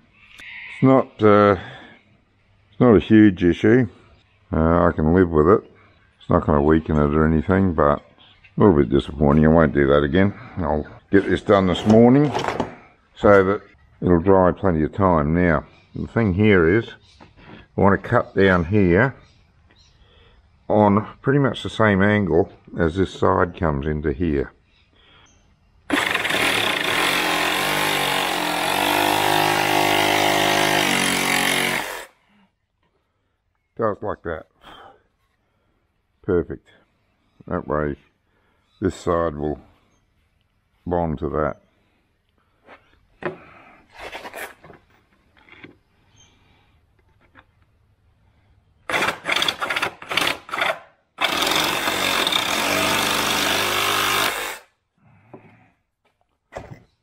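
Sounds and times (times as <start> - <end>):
reciprocating saw cutting: 25.9 - 32.2, 48.8 - 54.7.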